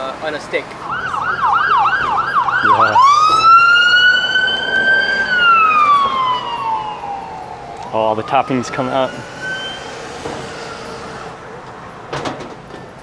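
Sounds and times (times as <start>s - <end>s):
emergency vehicle siren: 0.8s - 11.4s.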